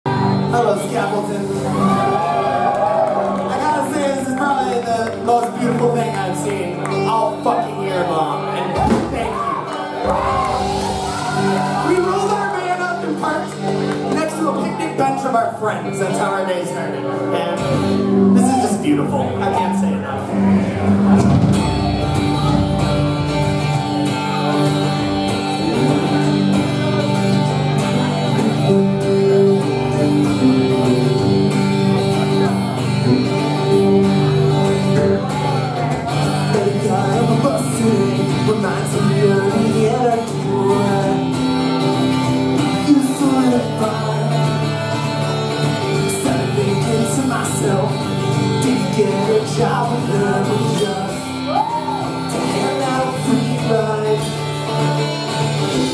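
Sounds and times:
ska band playing: 8.3 - 16.0, 16.9 - 55.9
person singing: 20.2 - 55.9.

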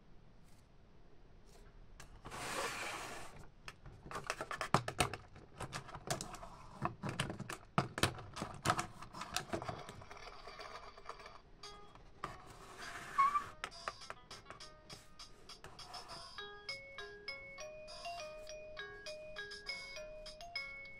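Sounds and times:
plastic scraping on table: 2.2 - 3.5, 12.2 - 13.8
plastic toy pieces clattering: 4.1 - 11.5.

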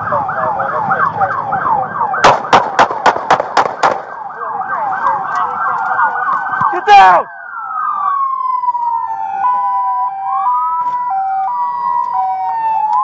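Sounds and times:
police siren yelping: 0.0 - 2.8, 3.6 - 13.0
loud gunshots: 2.2 - 4.1.

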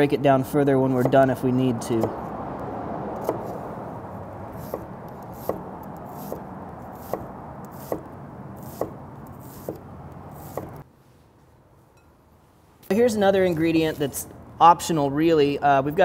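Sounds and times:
knife chopping on wooden board: 3.2 - 3.6, 4.6 - 9.8, 10.4 - 10.8
knife slicing: 3.2 - 3.6, 4.5 - 10.8.

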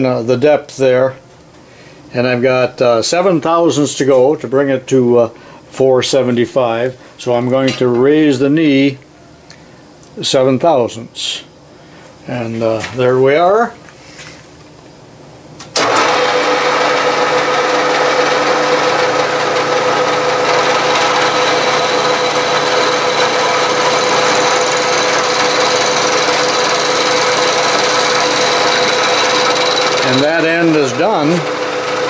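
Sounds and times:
milling machine cutting metal: 15.8 - 32.0.

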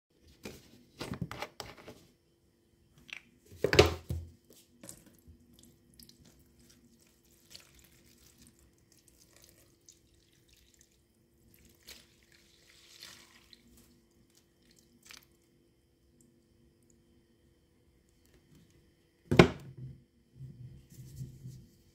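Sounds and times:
liquid splashing: 4.8 - 15.4
liquid trickling and crackling: 4.8 - 17.1
knocks on plastic tub: 19.3 - 19.9.

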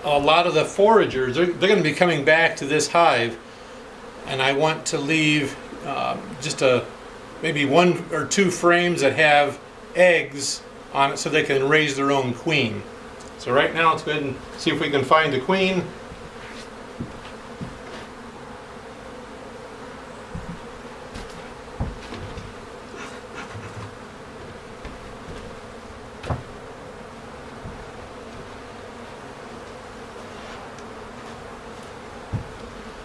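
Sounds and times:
honeybees humming: 0.0 - 33.0
knocks and clicks of hive covers: 17.0 - 18.2, 20.2 - 26.6, 27.6 - 28.6, 30.8 - 32.8.

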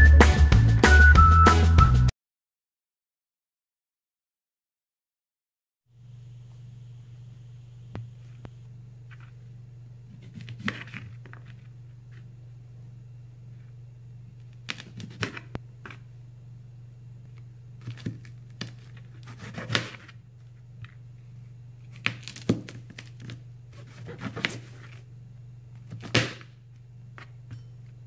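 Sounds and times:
knife slicing vegetable: 10.1 - 11.0, 17.8 - 20.1, 23.7 - 25.0.

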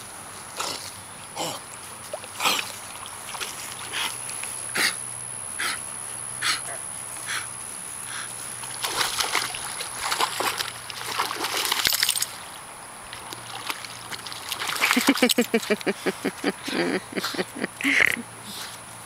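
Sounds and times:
dog splashing through water: 2.0 - 5.0, 8.1 - 12.5, 13.1 - 16.0.

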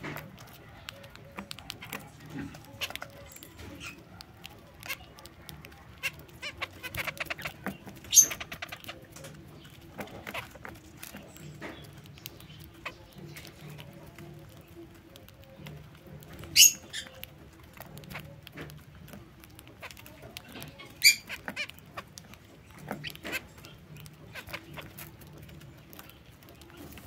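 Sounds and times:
birds pecking seed in metal tray: 0.0 - 27.0.

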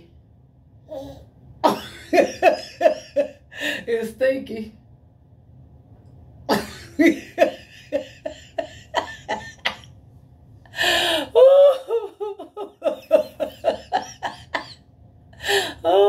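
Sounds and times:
woman laughing: 1.7 - 3.4, 6.5 - 9.9, 11.1 - 14.8.

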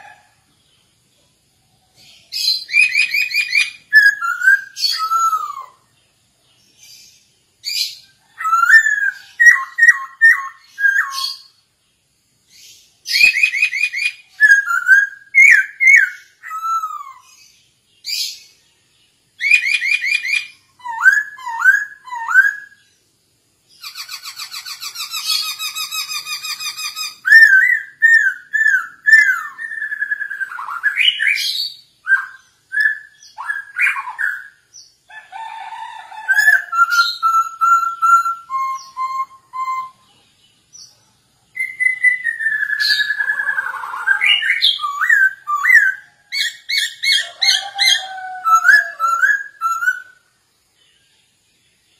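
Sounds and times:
bird whistling song: 2.0 - 6.0, 6.7 - 11.7, 12.5 - 18.6, 19.4 - 23.0, 23.7 - 35.0, 36.2 - 50.3
bird harsh rasping chatter: 23.8 - 27.3.

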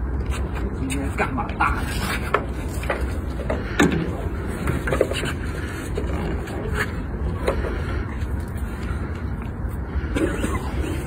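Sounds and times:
knocks and scrapes on concrete: 0.2 - 7.8.

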